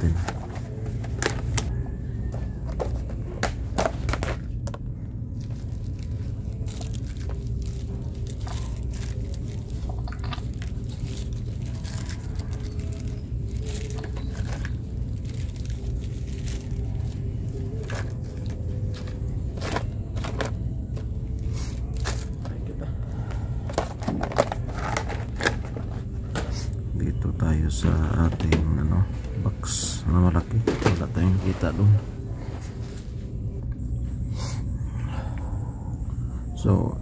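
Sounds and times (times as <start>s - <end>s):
hands rummaging through plastic parts: 0.0s - 1.7s, 2.3s - 26.8s
steady low hum: 0.0s - 37.0s
packets rustling: 2.6s - 22.6s.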